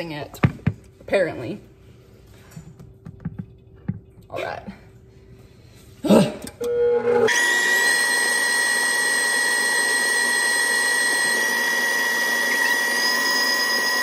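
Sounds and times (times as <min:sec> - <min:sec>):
stand mixer motor whining: 0:06.7 - 0:14.0.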